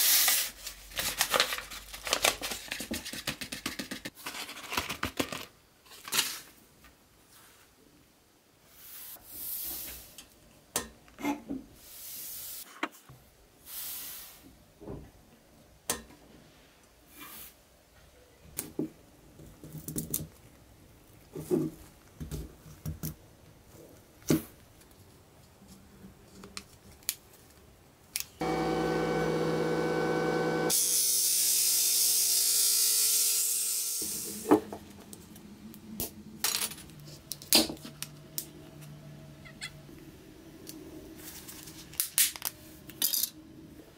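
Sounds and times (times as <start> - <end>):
steady machine hum: 28.4 - 30.8.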